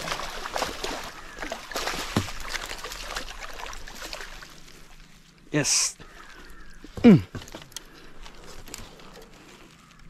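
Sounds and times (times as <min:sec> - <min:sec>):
water splashing against boat: 0:00.0 - 0:05.2.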